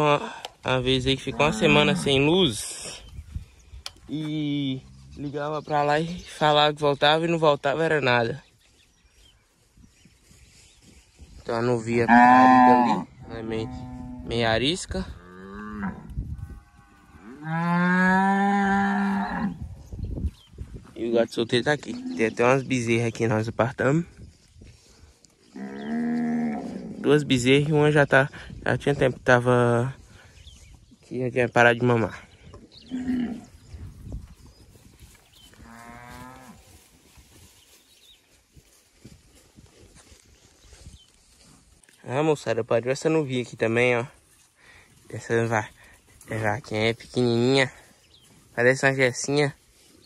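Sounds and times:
cow mooing: 1.3s - 2.2s, 12.1s - 14.4s.

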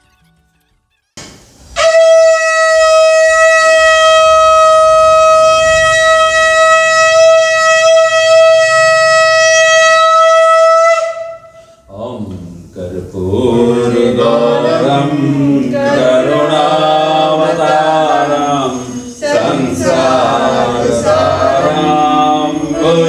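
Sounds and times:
conch shell blown: 1.6s - 11.9s, 15.8s - 23.0s.

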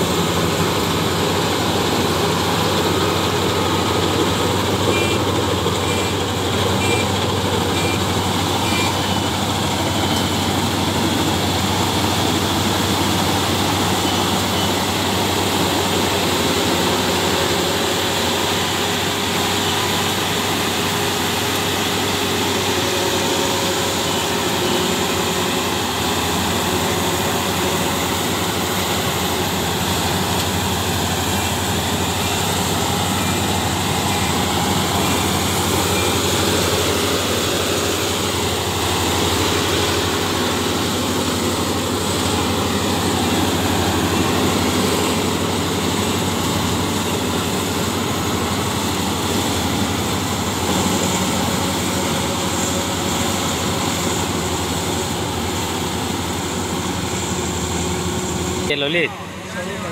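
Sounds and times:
combine harvester droning: 0.0s - 59.9s.

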